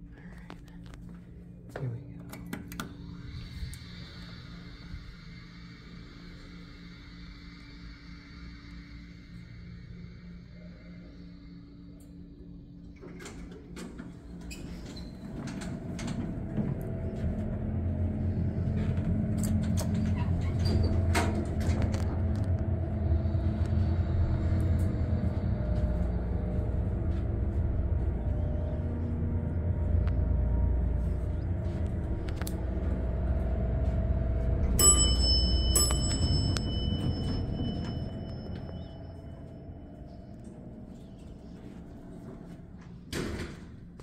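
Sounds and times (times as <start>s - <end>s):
elevator rumble: 0.0s - 44.0s
faint hum: 0.0s - 44.0s
steady high tone: 20.6s - 41.0s.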